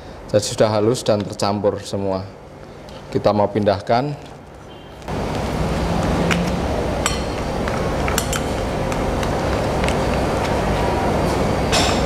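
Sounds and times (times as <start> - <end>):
steady rushing background noise: 4.4 - 12.0.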